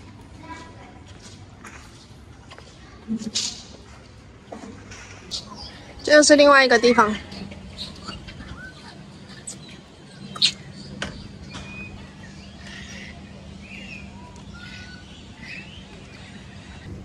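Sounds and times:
steady low hum: 0:05.2 - 0:17.0
birds chirping and whistling: 0:05.3 - 0:17.0.

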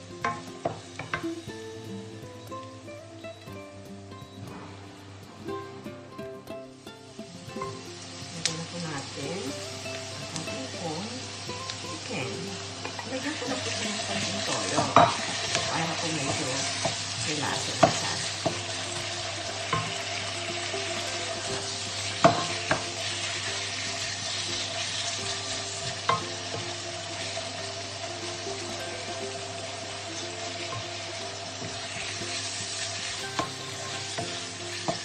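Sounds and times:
chicken sizzling in hot oil: 0:00.0 - 0:35.0
wooden spatula knocking on pan: 0:17.6 - 0:20.2, 0:21.6 - 0:22.9.

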